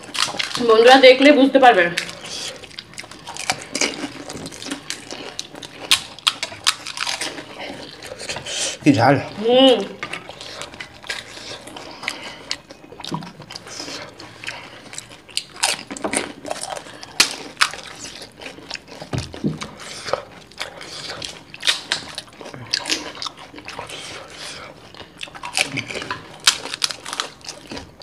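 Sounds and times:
crunching crisp shells: 0.0s - 0.9s, 2.0s - 8.3s, 13.4s - 28.0s
wet chewing: 0.0s - 28.0s.

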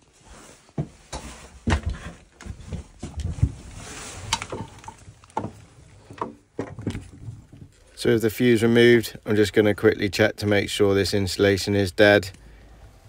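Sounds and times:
rustling handling noise: 0.0s - 9.4s
footsteps on wooden floorboards: 0.6s - 3.8s, 4.5s - 7.7s.

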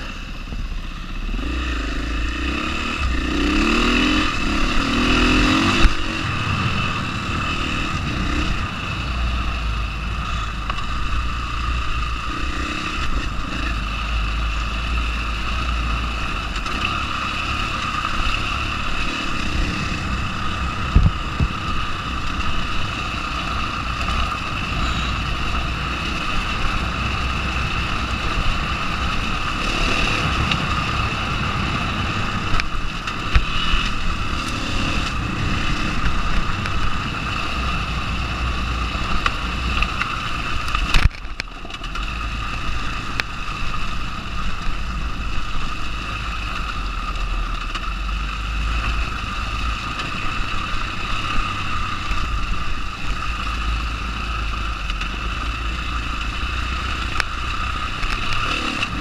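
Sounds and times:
dirt bike engine running: 0.0s - 59.0s
wind noise on microphone: 19.8s - 22.2s.

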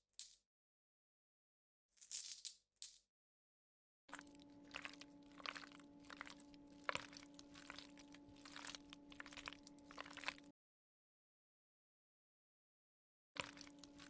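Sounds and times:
steady low hum: 4.1s - 10.5s.

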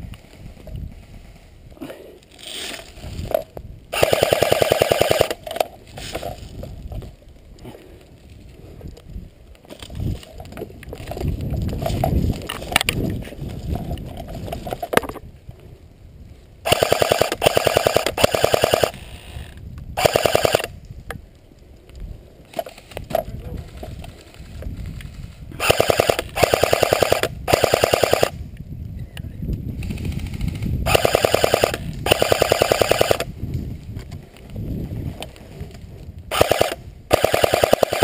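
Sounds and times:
airsoft gun rapid bursts: 4.0s - 5.4s, 16.7s - 19.0s, 20.0s - 20.7s, 25.6s - 28.4s, 30.0s - 33.3s, 36.3s - 38.0s.

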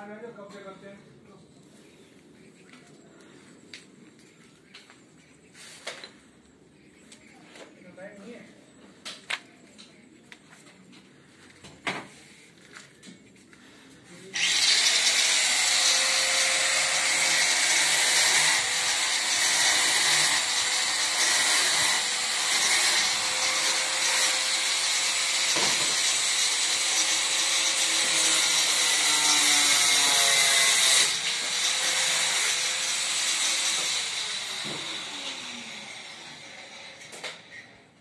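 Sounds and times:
power tool whining: 14.4s - 37.7s.

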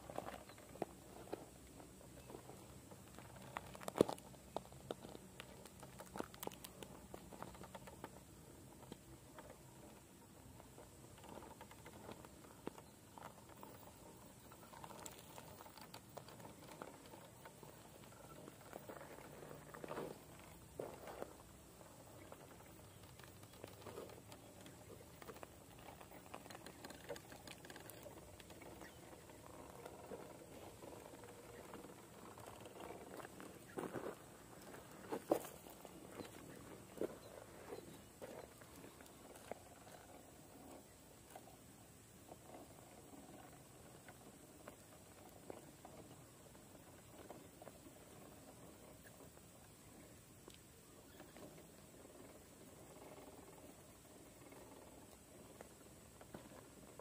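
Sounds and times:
rubber tyres tapping on rock: 0.0s - 10.0s.

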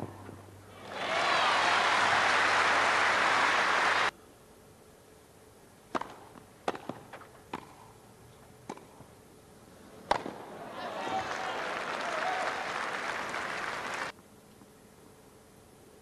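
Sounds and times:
crowd applause: 0.8s - 4.1s, 10.6s - 14.1s
tennis ball hit by racket: 5.9s - 7.8s, 8.6s - 9.0s, 10.1s - 10.4s.

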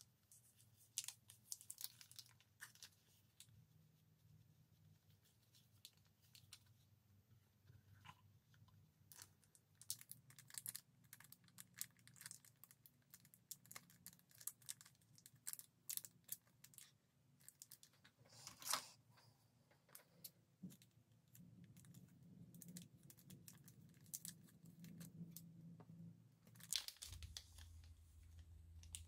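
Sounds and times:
plastic wrap crinkling: 0.8s - 3.5s, 20.6s - 25.5s, 26.4s - 29.0s.

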